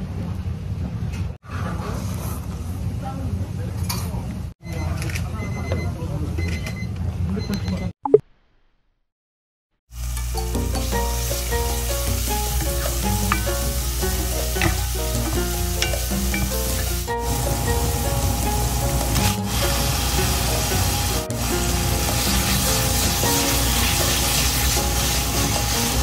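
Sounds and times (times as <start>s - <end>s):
aromatics sizzling in hot oil: 9.9s - 26.0s
light background music: 10.1s - 26.0s
wooden spatula stirring: 22.0s - 26.0s.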